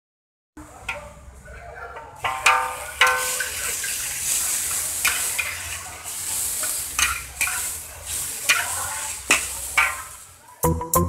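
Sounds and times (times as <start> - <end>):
spatula clinking against wok: 2.0 - 10.4
metal spatula scraping wok: 2.1 - 10.4
oil sizzling in a wok: 2.1 - 10.7.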